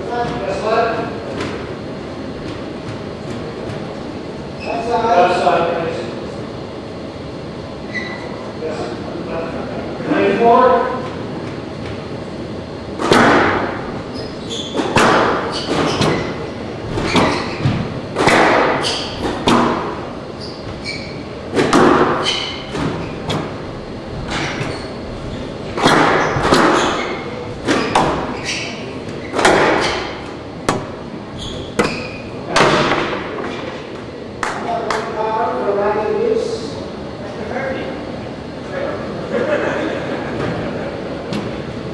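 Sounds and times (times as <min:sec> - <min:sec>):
squash ball hitting racquets and walls: 0:00.0 - 0:04.6, 0:12.8 - 0:35.1.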